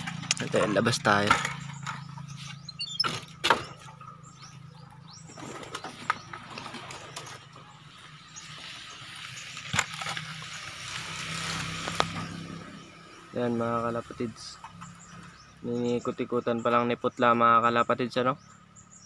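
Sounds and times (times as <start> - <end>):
pigeons stirring in a cage: 0.0 - 13.2.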